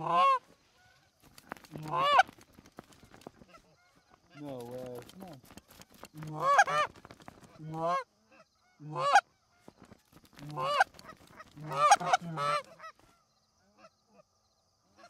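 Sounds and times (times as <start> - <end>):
geese honking: 0.0 - 2.3, 6.2 - 6.9, 7.5 - 9.8, 10.4 - 13.2.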